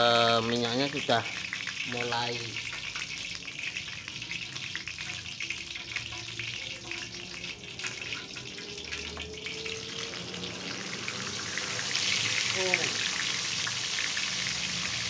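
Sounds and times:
oil sizzling in frying pan: 0.0s - 15.0s.

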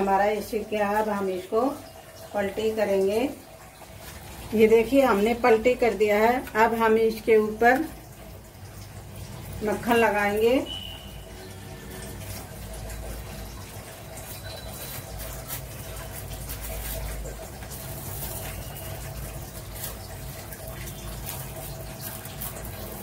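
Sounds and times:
flatbread sizzling on a pan: 10.6s - 23.0s.

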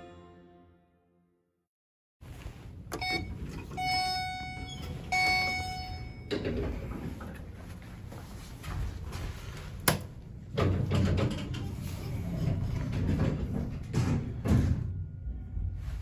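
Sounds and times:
elevator doors sliding open: 2.8s - 7.6s, 9.8s - 16.0s
short electronic beeps: 3.0s - 6.3s.

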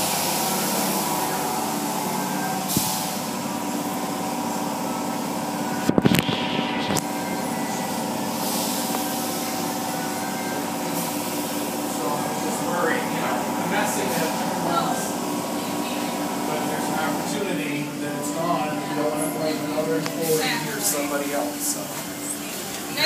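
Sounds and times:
water spray hissing on windows: 0.0s - 1.4s
machinery hum: 0.0s - 23.0s.

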